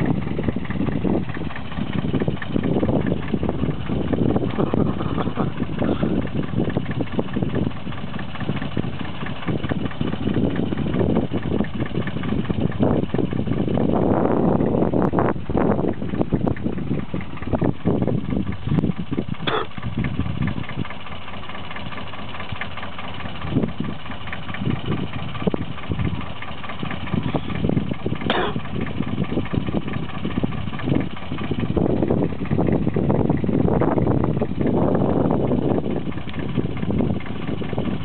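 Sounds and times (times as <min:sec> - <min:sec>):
tractor engine running: 0:00.0 - 0:38.0.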